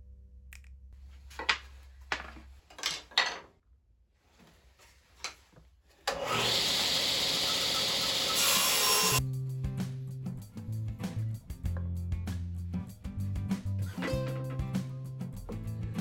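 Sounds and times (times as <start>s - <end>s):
wooden boards knocking and scraping: 1.4s - 3.5s
table saw running: 6.1s - 9.2s.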